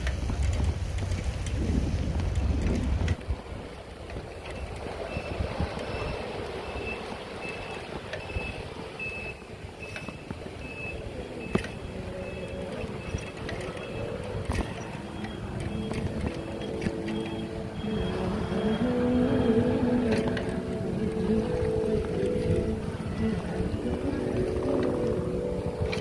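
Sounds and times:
street and traffic noise: 0.0s - 26.0s
reversing alarm beeps: 4.5s - 23.6s.

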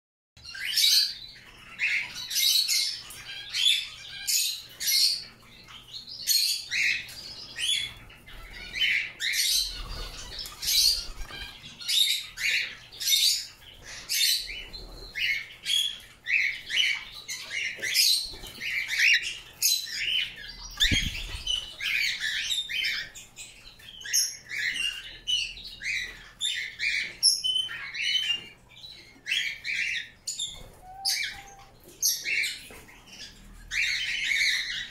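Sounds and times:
wings fluttering: 9.5s - 11.9s, 20.7s - 22.3s.

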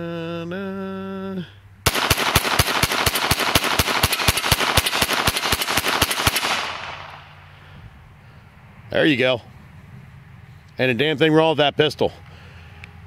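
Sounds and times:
pistol shots in rapid succession: 1.9s - 7.4s
gunshot echo: 1.9s - 7.5s.

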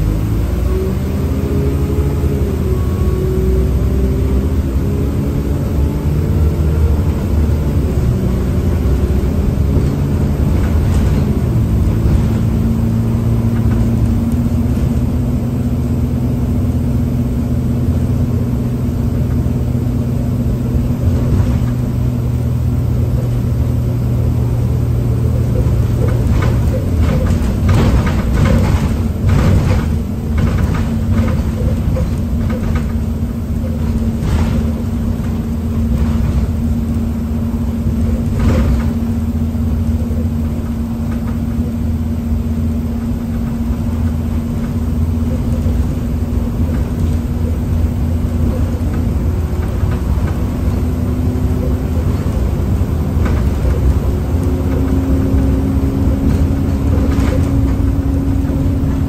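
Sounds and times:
bus diesel engine: 0.0s - 59.0s
road noise: 0.0s - 59.0s
rattles: 25.2s - 41.7s, 43.0s - 59.0s.

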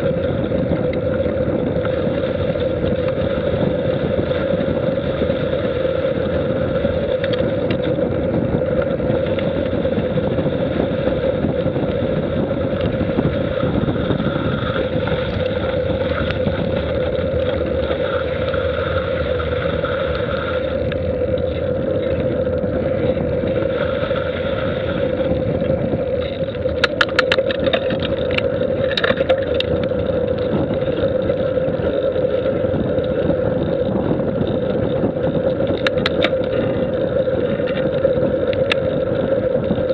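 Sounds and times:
road noise: 0.0s - 39.9s
wind rushing: 0.0s - 39.9s
sharp clicks or rattles: 26.2s - 29.9s, 35.6s - 36.8s.

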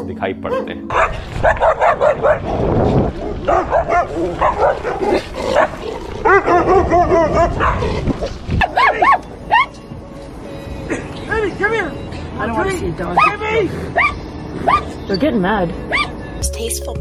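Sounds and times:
small dog barking: 0.5s - 2.5s, 3.2s - 7.9s, 8.6s - 9.7s, 13.2s - 13.4s, 14.0s - 15.0s, 15.9s - 16.1s.

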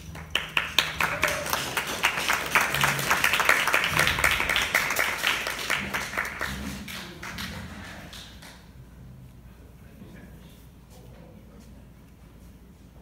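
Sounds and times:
small crowd applauding: 0.0s - 8.7s.

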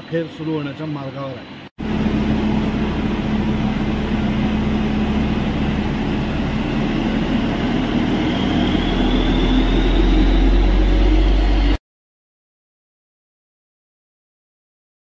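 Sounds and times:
faint rising whine: 1.2s - 11.8s
engine hum and rumble: 1.8s - 11.8s.

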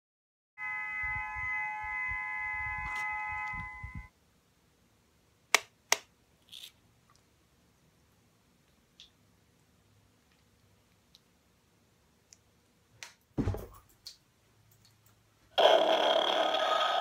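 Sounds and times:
electronic chord of held tones: 0.6s - 4.1s.

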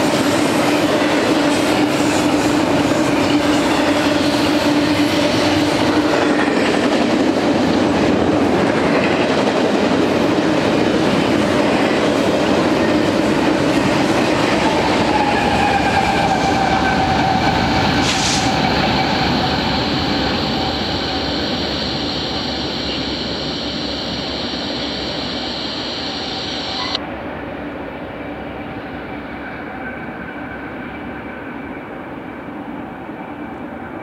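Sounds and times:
train wheels rumbling on rail: 0.0s - 34.0s
locomotive engines whining: 12.6s - 27.0s.

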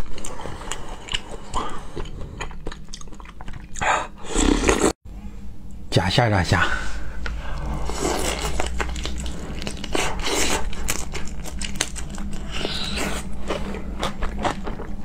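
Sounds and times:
crunching prawn shell while chewing: 0.0s - 3.8s, 7.8s - 15.0s.

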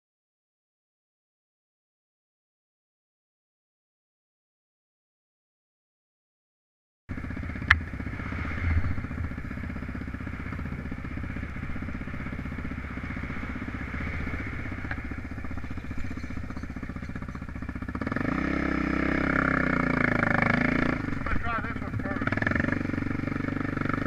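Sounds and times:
motorcycle engine running: 7.1s - 24.0s.

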